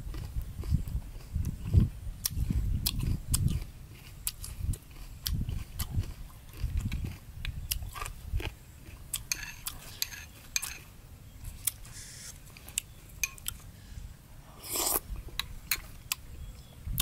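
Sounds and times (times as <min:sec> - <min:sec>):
spoon scraping ceramic bowl: 0:09.3 - 0:10.9
mouth sound of a bite: 0:14.6 - 0:15.1.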